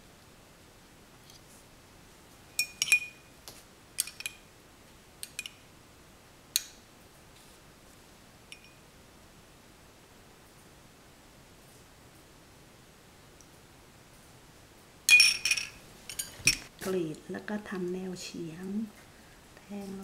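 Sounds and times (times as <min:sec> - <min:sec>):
spoon and glass bowls clinking: 0:02.6 - 0:03.3, 0:08.5 - 0:08.8, 0:15.1 - 0:16.7.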